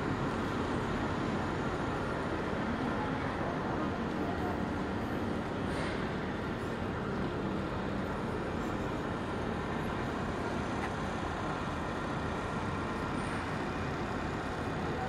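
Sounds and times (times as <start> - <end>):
city background rumble: 0.0 - 15.0.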